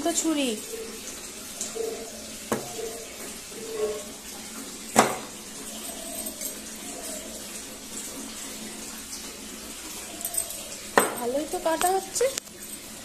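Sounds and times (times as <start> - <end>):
knife knocking on wooden bench: 5.0 - 5.3, 11.0 - 11.2.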